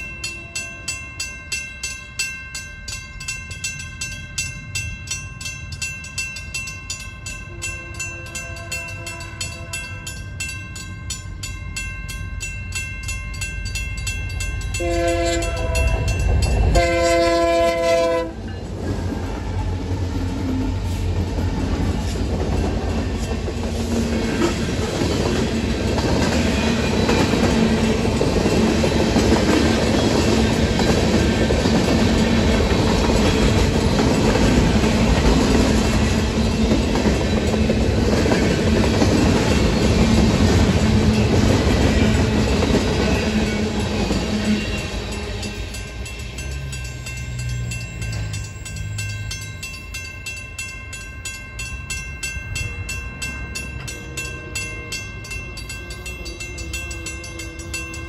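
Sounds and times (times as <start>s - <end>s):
freight train rolling: 0.0s - 58.0s
railroad crossing bell dinging: 0.0s - 58.0s
wheels clattering on rail joints: 13.7s - 50.1s
locomotive air horn blasts: 14.8s - 16.0s, 16.7s - 18.5s.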